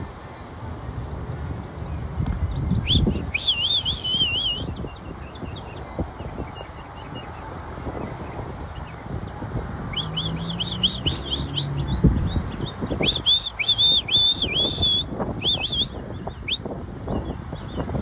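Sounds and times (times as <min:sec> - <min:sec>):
mockingbird singing: 0:09.9 - 0:16.6.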